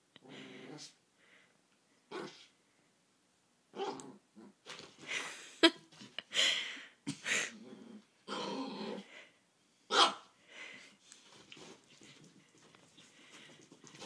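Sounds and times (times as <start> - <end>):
dog growling: 7.5 - 9.1
small dog barking: 9.9 - 10.3.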